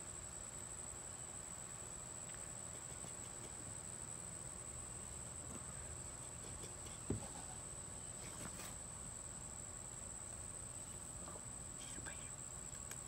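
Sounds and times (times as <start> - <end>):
high-pitched insect trill: 0.0 - 13.0
short dull thump: 6.8 - 7.4.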